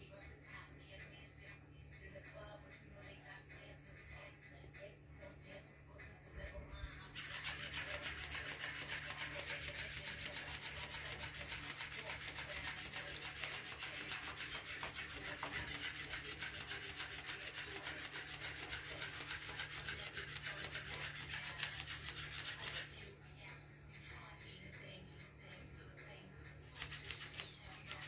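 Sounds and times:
toy fish flapping on carpet: 0:06.9 - 0:23.0, 0:26.7 - 0:28.0.

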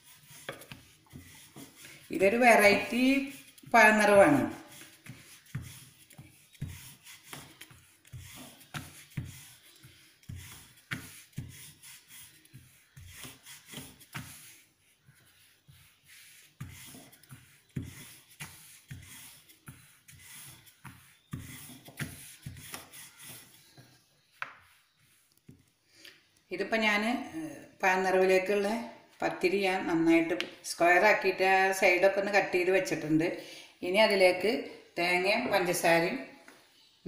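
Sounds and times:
rolling pin rubbing on dough: 0:00.0 - 0:25.7.

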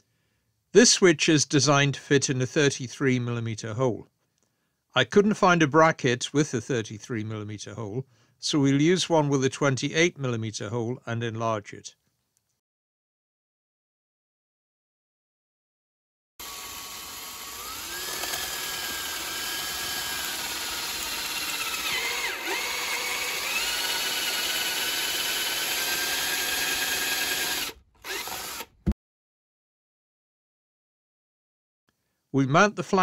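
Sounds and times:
cordless drill motor whine: 0:16.4 - 0:28.8
drill click: 0:16.4 - 0:28.9.

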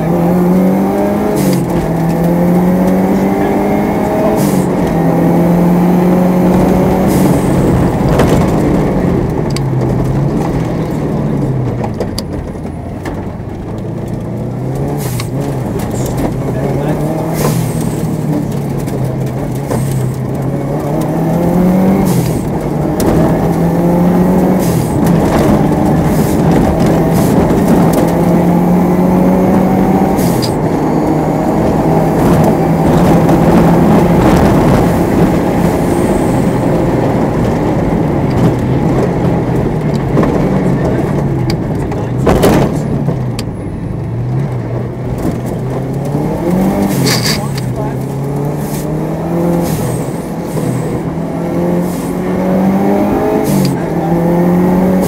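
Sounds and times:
rally car engine revving: 0:00.0 - 0:55.0
gravel knocks and clatter: 0:07.6 - 0:30.8, 0:31.8 - 0:49.4.

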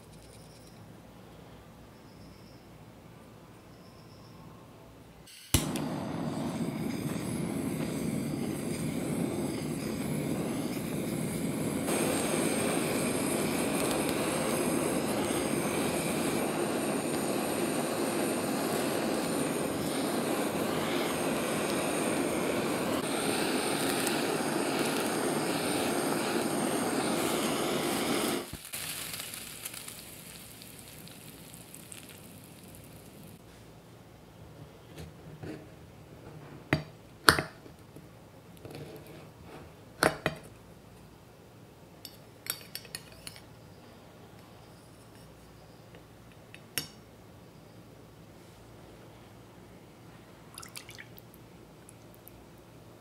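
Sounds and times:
blowtorch flame roaring: 0:05.3 - 0:33.4
blowtorch ignition click: 0:05.3 - 0:33.4.

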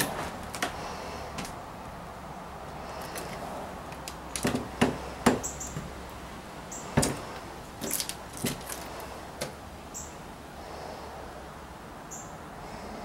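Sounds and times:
boots on wooden stairs: 0:04.3 - 0:05.9, 0:06.9 - 0:08.9
wooden stairs squeaking: 0:04.3 - 0:05.9, 0:06.7 - 0:08.9.

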